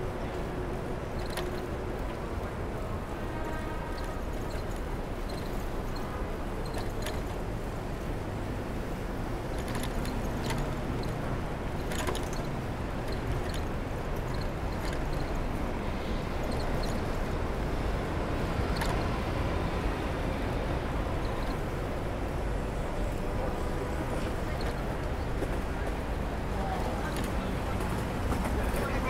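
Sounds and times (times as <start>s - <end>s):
city street traffic: 0.0s - 29.0s
road noise: 0.0s - 29.0s
bicycle ticks and rattles: 0.2s - 19.6s, 20.4s - 23.3s.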